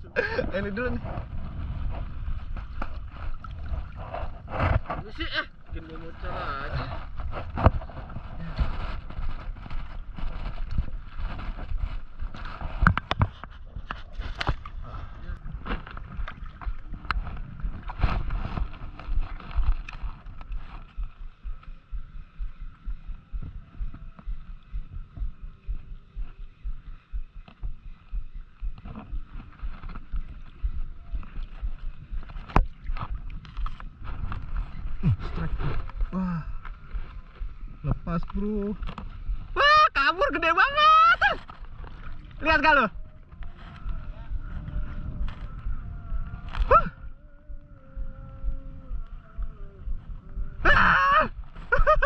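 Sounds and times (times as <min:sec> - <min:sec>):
wind buffeting microphone: 0:00.0 - 0:52.0
water lapping around legs: 0:00.2 - 0:39.6, 0:40.4 - 0:52.0
person exclaiming: 0:39.6 - 0:41.4, 0:50.6 - 0:51.4.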